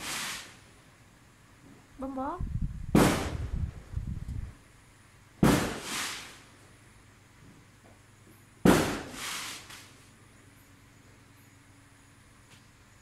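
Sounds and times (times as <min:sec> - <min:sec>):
firecracker bang: 0:02.9 - 0:03.6, 0:05.4 - 0:06.5, 0:08.6 - 0:09.9.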